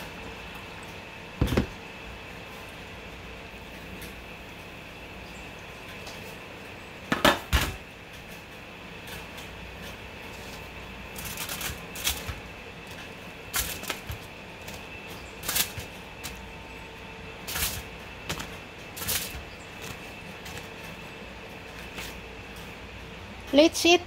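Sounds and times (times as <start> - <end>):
aluminum foil crackling: 8.2 - 22.7
crisp rolls clacking together: 10.3 - 16.5.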